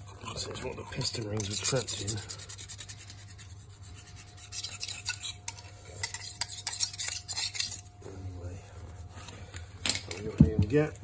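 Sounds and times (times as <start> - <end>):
gloved fingers rubbing metal: 0.0 - 7.9.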